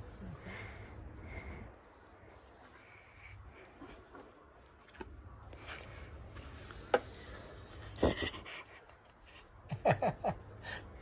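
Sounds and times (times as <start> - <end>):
man laughing: 9.7 - 10.4.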